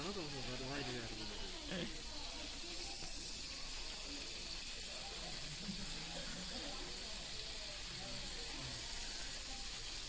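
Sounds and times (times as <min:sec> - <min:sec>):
meat sizzling in a pan: 0:00.0 - 0:10.0.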